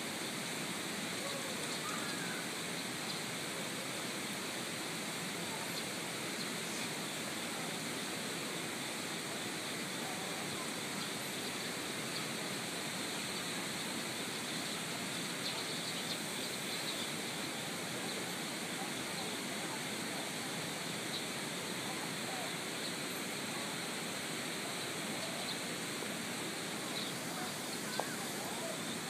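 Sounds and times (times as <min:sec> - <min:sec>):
mountain stream rushing: 0:00.0 - 0:29.0
faint bird chirps: 0:01.2 - 0:03.3, 0:13.0 - 0:19.8, 0:26.4 - 0:29.0.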